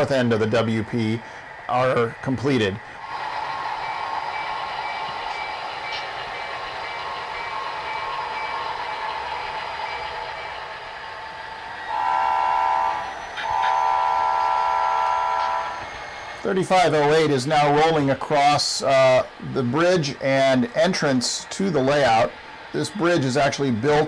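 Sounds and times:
model locomotive engine drone: 0:00.0 - 0:24.0
multi-tone air horn blasts: 0:11.9 - 0:15.8.

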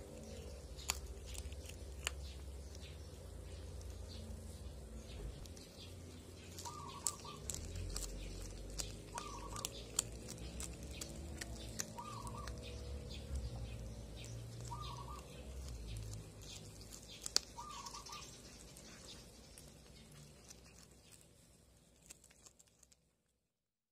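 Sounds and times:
cat crunching fish bones: 0:00.0 - 0:23.4
bird warbling call: 0:06.6 - 0:07.6, 0:09.1 - 0:09.7, 0:11.8 - 0:12.7, 0:14.6 - 0:15.3, 0:17.6 - 0:18.4.

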